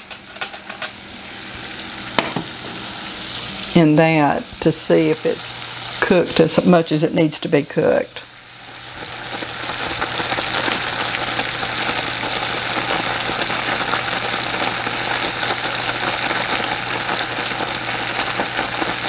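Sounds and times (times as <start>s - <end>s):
syrup boiling in saucepan: 8.0s - 19.0s.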